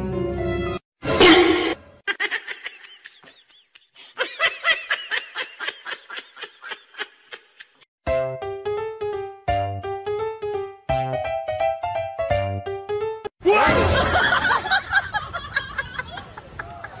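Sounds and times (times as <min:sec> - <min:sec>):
piano music: 0:00.0 - 0:00.8, 0:08.0 - 0:13.3
person giggling: 0:02.1 - 0:07.9.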